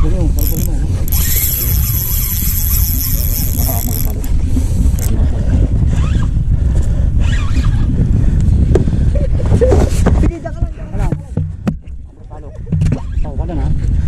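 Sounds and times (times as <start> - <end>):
fishing reel whirring: 0.0 - 5.2.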